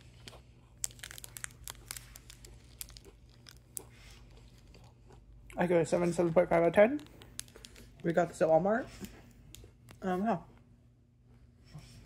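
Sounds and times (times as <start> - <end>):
plastic wrapper crinkling: 0.0 - 4.9, 6.0 - 8.3.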